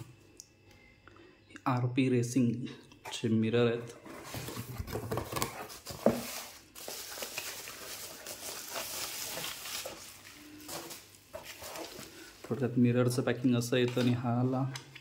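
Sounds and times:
packaging rustling and crinkling: 0:04.1 - 0:12.6.

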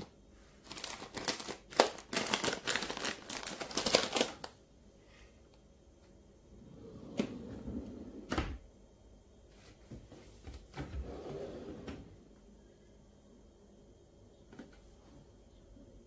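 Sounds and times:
drawer sliding open: 0:06.6 - 0:08.6, 0:10.7 - 0:12.2.

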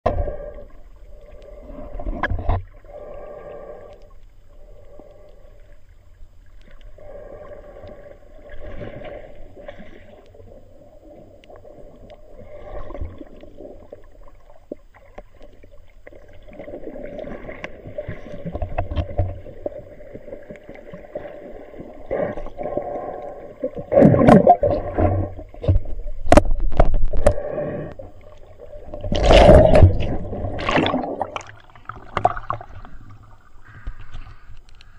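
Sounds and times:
droning hum: 0:00.0 - 0:34.9
underwater water gurgling: 0:00.0 - 0:34.9
loud water swishing: 0:29.1 - 0:32.8.

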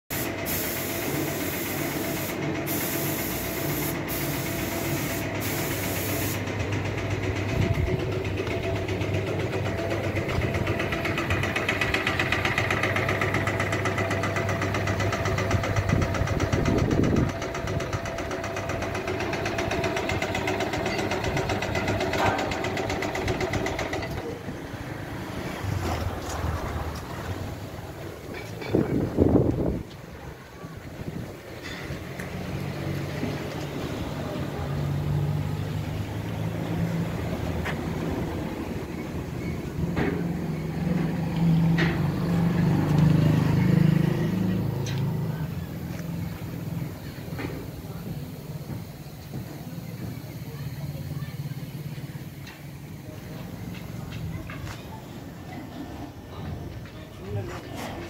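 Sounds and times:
loud high hiss: 0:00.1 - 0:06.5
washing machine motor hum: 0:06.4 - 0:24.2.

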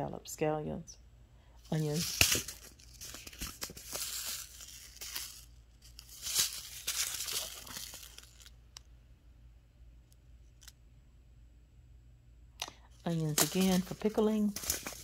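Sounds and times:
paper envelopes rustling: 0:01.7 - 0:08.6, 0:13.0 - 0:15.0.

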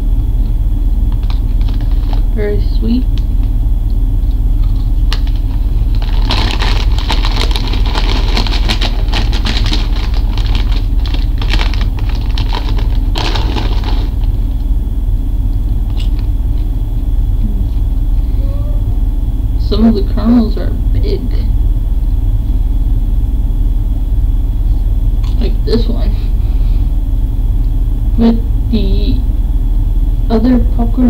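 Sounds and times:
low hum: 0:00.0 - 0:31.0
popcorn crunching: 0:01.0 - 0:02.4, 0:03.1 - 0:14.8, 0:15.4 - 0:18.3.

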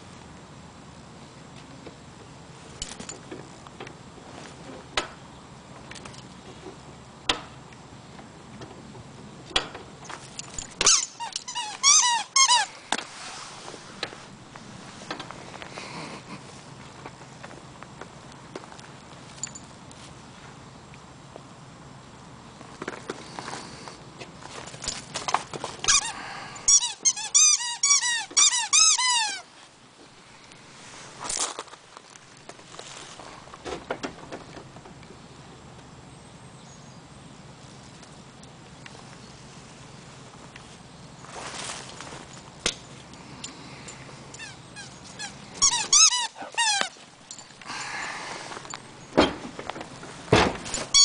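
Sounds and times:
short high squeaks: 0:10.4 - 0:14.3, 0:25.8 - 0:29.5, 0:43.5 - 0:49.2, 0:50.6 - 0:51.0.

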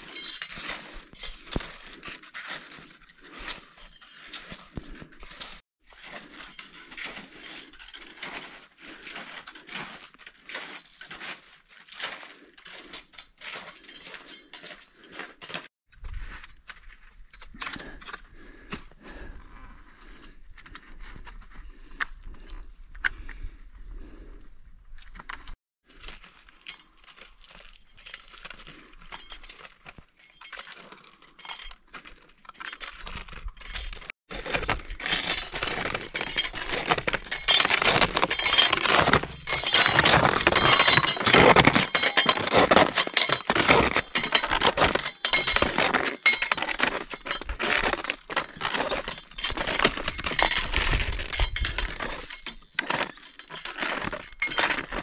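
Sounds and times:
hard pieces clinking together: 0:35.0 - 0:55.0.

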